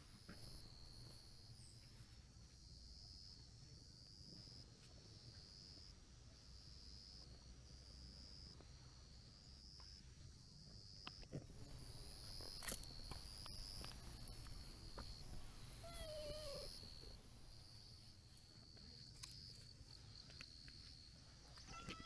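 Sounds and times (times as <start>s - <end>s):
insects chirping: 0.0s - 22.0s
cat meowing: 15.8s - 16.7s.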